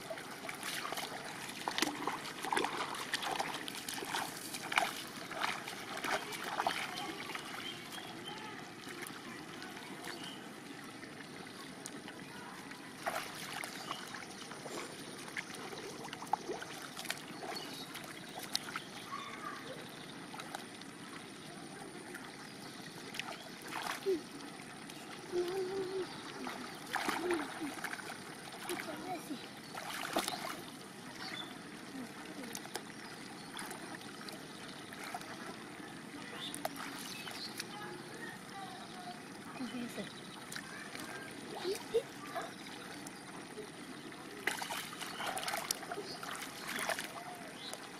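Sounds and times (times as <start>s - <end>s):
short splashes: 0.0s - 9.4s, 13.0s - 19.3s, 23.1s - 24.2s, 25.3s - 31.4s, 44.3s - 47.9s
water sloshing and trickling: 0.0s - 47.9s
faint voices: 5.7s - 16.0s, 35.2s - 47.9s.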